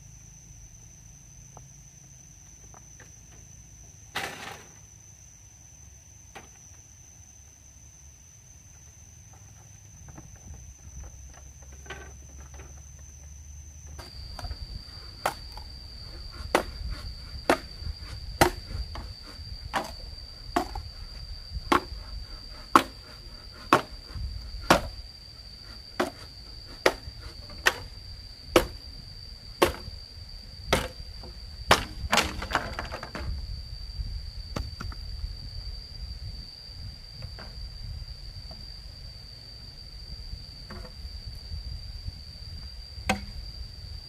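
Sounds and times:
insect trill: 0.0 - 44.0
hand tool blows: 14.0 - 28.0.

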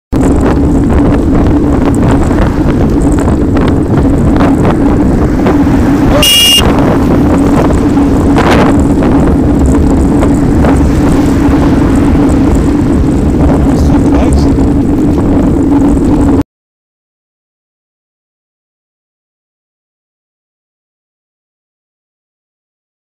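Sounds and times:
wind buffeting microphone: 0.1 - 16.4
bicycle tyre rumble on tarmac: 0.2 - 16.4
steady hum: 0.2 - 16.4
brief high tone: 6.1 - 6.7.

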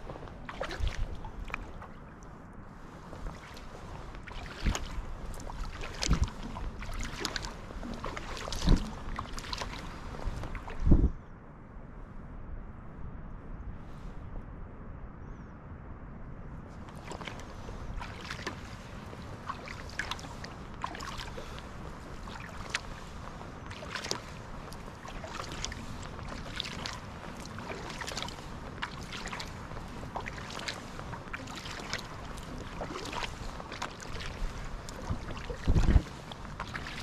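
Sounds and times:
paddle splashing and dripping: 0.0 - 10.9, 16.9 - 37.0
low rumble: 0.0 - 23.6.

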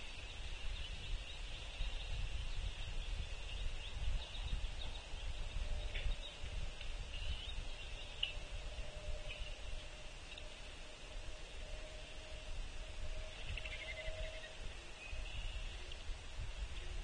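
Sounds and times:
faint bird chirps: 0.0 - 10.7, 11.6 - 16.1
low fluctuating rumble: 0.0 - 17.0
steady high hiss: 6.4 - 17.0.

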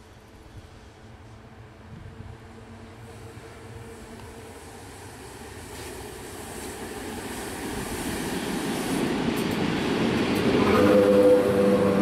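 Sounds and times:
electric locomotive passing: 0.0 - 12.0.

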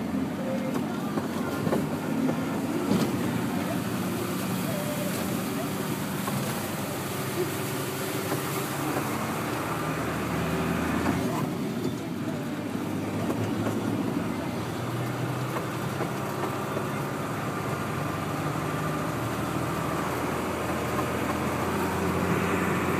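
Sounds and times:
truck engine running: 0.0 - 22.9
tyres hissing on wet road: 0.0 - 22.9.

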